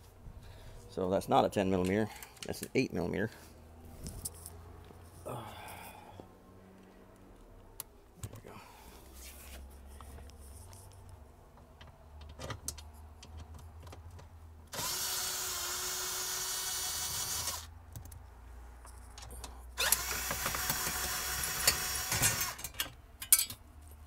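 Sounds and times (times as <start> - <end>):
impact driver running: 14.7 - 17.7, 19.8 - 22.6.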